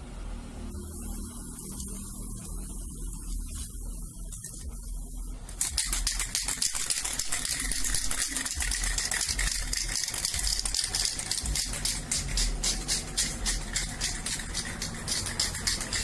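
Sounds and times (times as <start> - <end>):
spray can ball rattling: 5.5 - 16.0.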